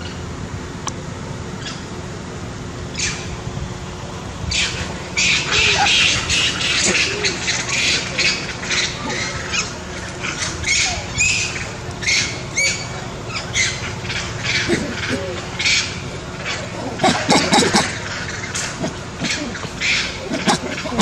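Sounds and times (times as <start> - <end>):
low steady hum: 0.0 - 21.0
bird squawking: 4.5 - 21.0.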